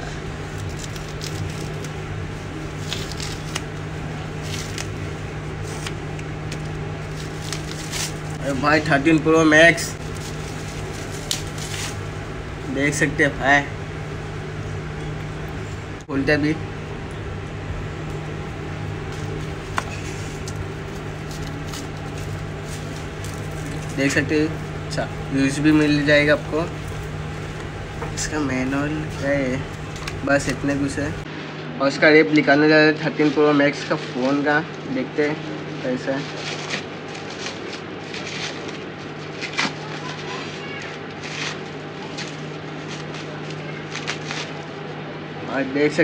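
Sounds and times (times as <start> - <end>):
bubble wrap crinkling: 0.0 - 31.3, 36.0 - 44.8
steady low hum: 0.0 - 40.0
packing tape ripping: 0.4 - 9.2, 9.8 - 12.2, 18.1 - 31.2, 36.3 - 40.4, 41.1 - 44.6.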